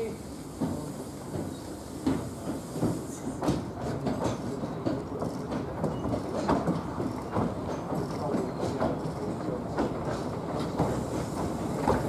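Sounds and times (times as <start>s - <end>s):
steam locomotive rolling: 0.0s - 12.0s.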